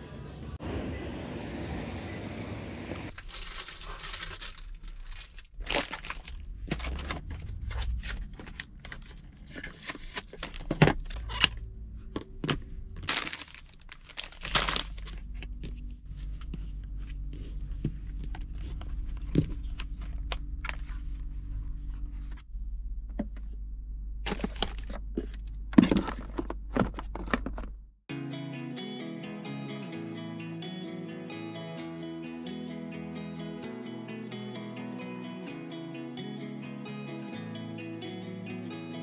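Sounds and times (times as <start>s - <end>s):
low steady hum: 2.2s - 27.9s
plastic packaging crinkling: 3.1s - 11.4s, 13.0s - 15.8s.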